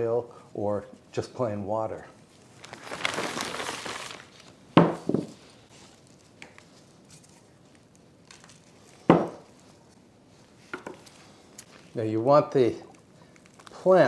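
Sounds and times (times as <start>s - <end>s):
plastic bag rustling: 2.3s - 12.0s, 12.9s - 14.0s
sharp knocks of clay pots: 4.8s - 5.4s, 9.1s - 9.4s.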